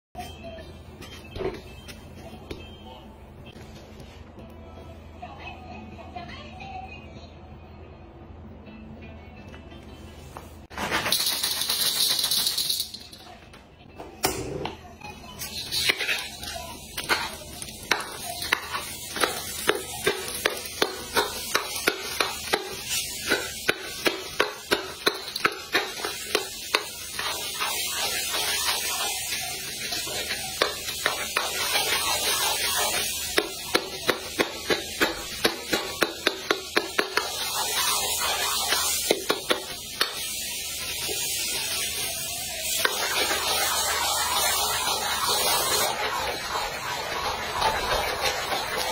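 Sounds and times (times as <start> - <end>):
food sizzling in a wok: 15.4 - 48.9.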